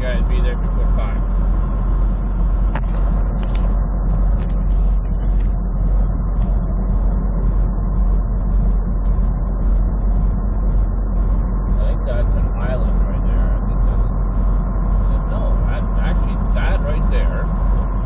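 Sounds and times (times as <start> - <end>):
truck engine and road noise: 0.0 - 18.0.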